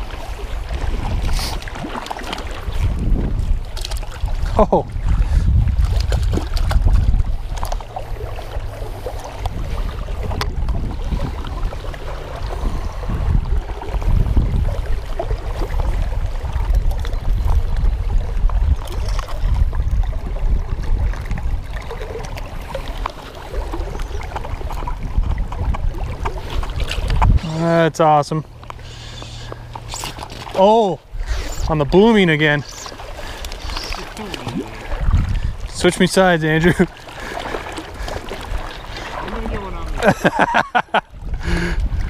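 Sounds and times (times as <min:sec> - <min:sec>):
wind buffeting microphone: 0:00.0 - 0:42.0
river water rushing: 0:26.0 - 0:41.6.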